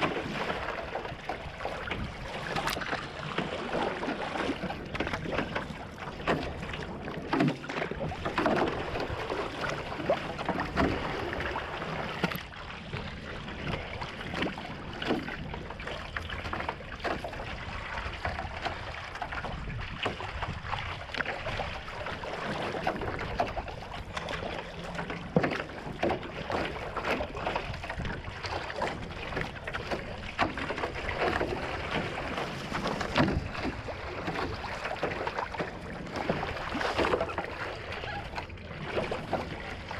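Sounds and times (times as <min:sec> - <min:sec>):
paddle splashes: 0:00.0 - 0:39.9
water rushing along hull: 0:00.0 - 0:39.9
wind on microphone: 0:17.2 - 0:39.9.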